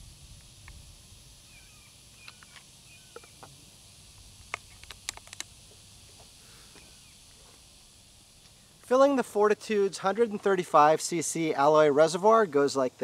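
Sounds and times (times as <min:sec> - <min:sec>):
soft bird chirps: 0:01.4 - 0:03.4.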